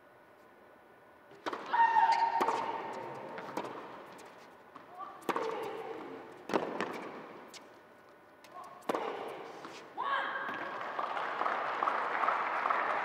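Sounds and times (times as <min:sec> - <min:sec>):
tennis ball hits: 0:01.4 - 0:04.3, 0:05.2 - 0:07.3, 0:08.6 - 0:09.8.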